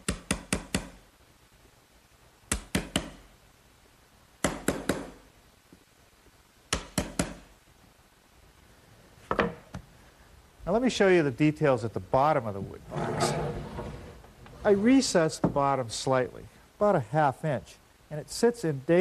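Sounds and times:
mallet tapping chisel into wood: 6.7s - 7.5s.

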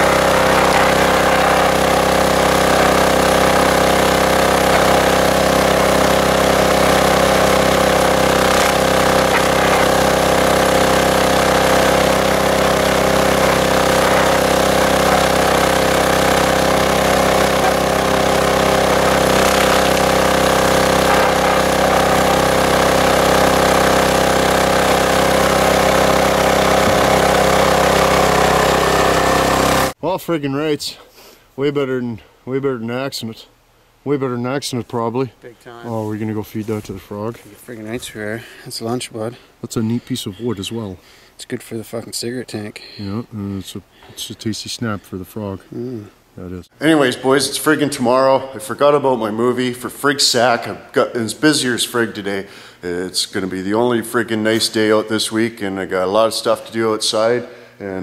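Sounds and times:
small diesel engine running: 0.0s - 30.0s.

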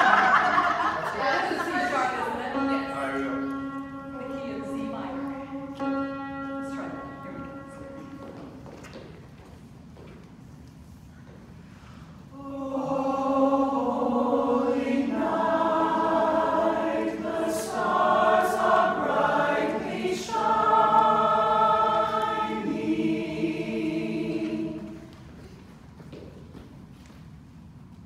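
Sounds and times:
mixed choir singing a cappella: 0.0s - 8.3s, 12.3s - 25.3s.

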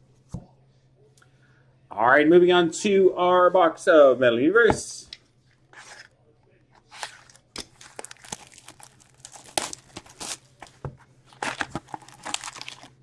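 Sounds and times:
faint steady hum: 0.0s - 13.0s
plastic shrink wrap crinkling: 6.8s - 13.0s.

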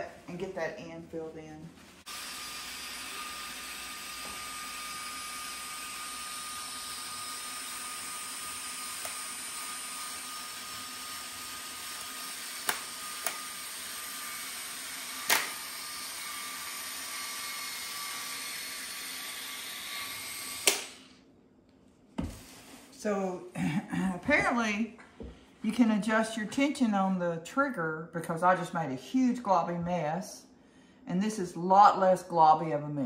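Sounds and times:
electric caulking gun motor whining: 2.1s - 21.2s.

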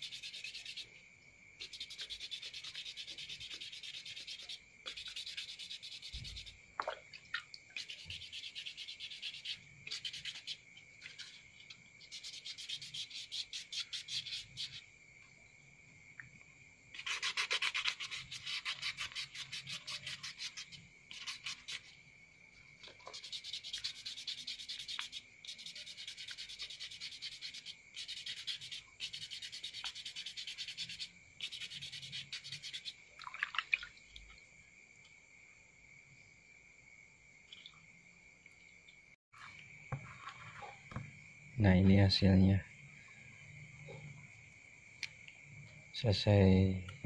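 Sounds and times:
sandpaper sanding strokes: 0.0s - 0.8s, 1.6s - 6.5s, 7.8s - 11.4s, 12.0s - 14.8s, 17.0s - 21.9s, 23.1s - 32.9s.

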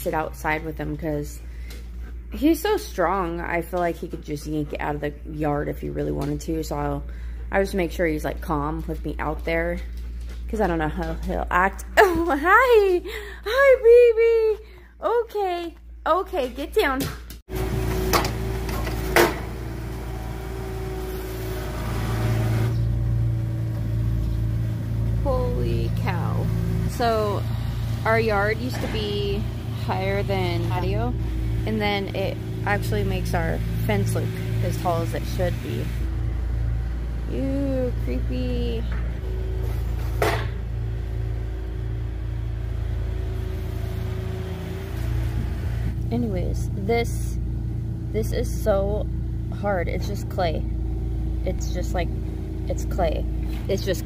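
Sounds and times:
low mechanical rumble: 0.0s - 54.0s
excavator diesel engine running: 17.5s - 54.0s.

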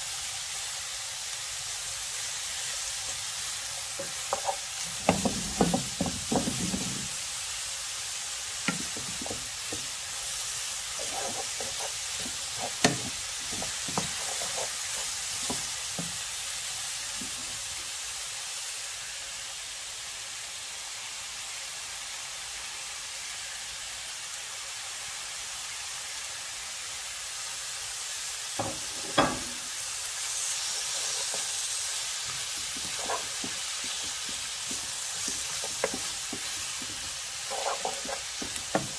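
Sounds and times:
vegetables sizzling in a pan: 0.0s - 38.9s
wooden spatula scraping a pan: 3.7s - 7.3s, 8.6s - 16.4s, 17.1s - 17.8s, 30.3s - 38.9s.

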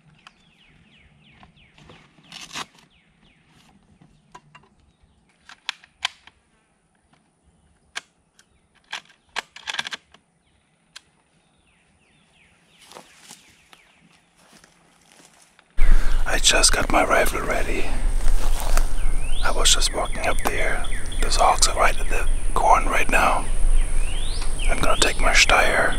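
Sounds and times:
rifle handling clicks and knocks: 4.0s - 6.4s, 8.8s - 10.2s
rifle bag rustling: 17.9s - 19.2s.

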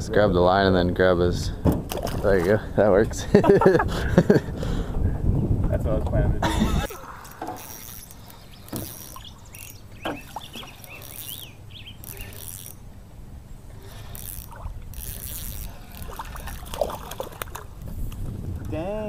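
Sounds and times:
spinning reel cranking: 7.2s - 12.9s, 13.8s - 17.0s
small birds chirping: 7.5s - 13.0s.

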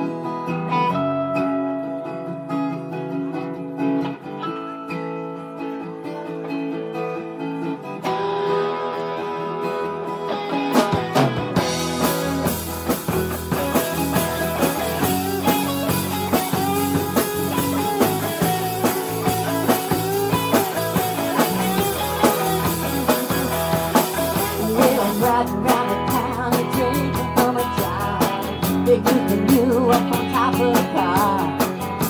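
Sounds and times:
electric guitar: 0.0s - 32.0s
strummed acoustic guitar: 0.0s - 32.0s
drum kit: 9.6s - 32.0s.

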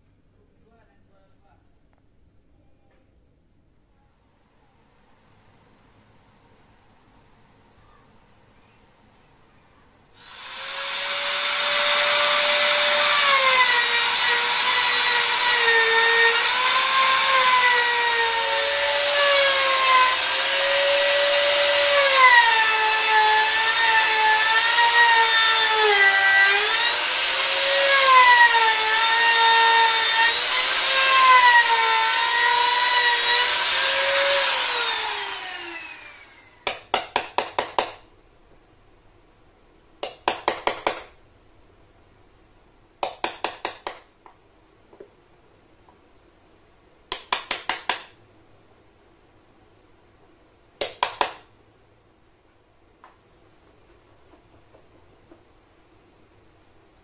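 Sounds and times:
trim router whining: 10.2s - 36.6s
hammer tapping on chisel: 36.6s - 38.0s, 40.0s - 41.1s, 43.0s - 45.1s, 47.1s - 48.2s, 50.8s - 51.4s.

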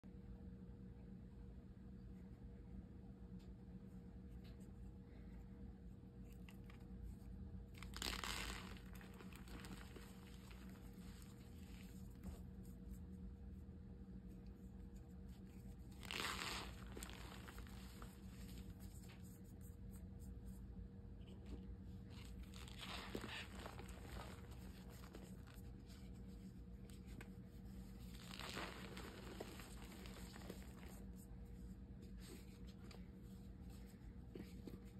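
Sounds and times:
chalk crackling and crunching: 7.8s - 12.3s, 15.8s - 19.2s, 22.1s - 25.8s, 28.0s - 31.2s
chalk crunching in hands: 22.1s - 31.2s.

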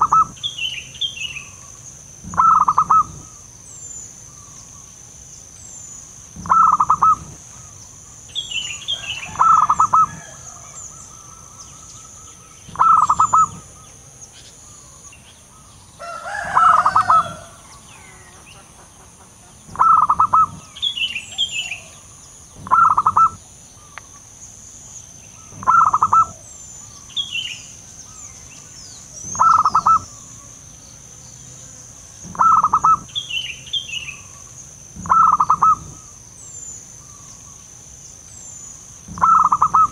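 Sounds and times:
dove cooing: 0.0s - 0.4s, 2.2s - 3.4s, 6.4s - 7.7s, 8.9s - 11.6s, 12.7s - 13.8s, 16.0s - 18.3s, 19.7s - 23.4s, 25.5s - 26.5s, 29.1s - 30.2s, 32.2s - 33.2s, 35.0s - 36.1s, 39.1s - 39.9s
faint small bird chirps: 0.0s - 18.6s, 19.7s - 31.0s, 32.2s - 39.9s.

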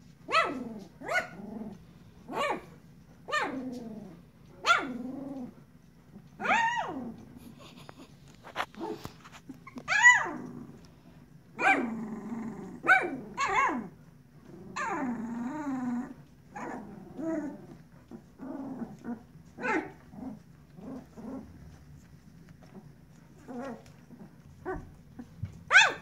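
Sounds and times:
puppies squealing and whining: 8.6s - 10.5s, 13.4s - 13.9s.

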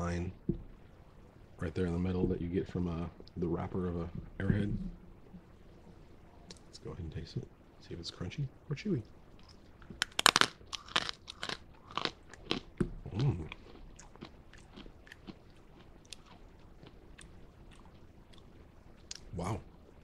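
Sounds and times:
candy crunching in mouth: 10.0s - 15.4s.

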